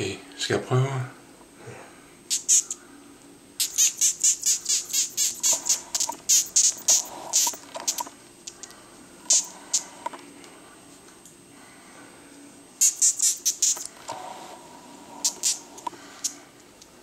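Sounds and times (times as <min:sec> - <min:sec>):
moth squeaking: 0:03.6 - 0:08.1.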